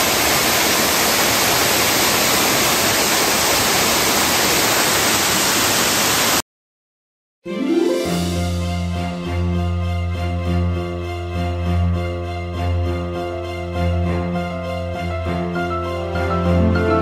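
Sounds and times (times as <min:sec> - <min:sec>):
rushing water: 0:00.0 - 0:06.4.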